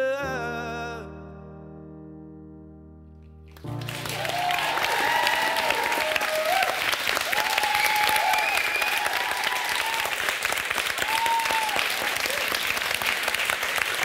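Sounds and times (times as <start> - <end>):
audience applauding: 3.5 - 14.0
audience cheering: 3.7 - 14.0.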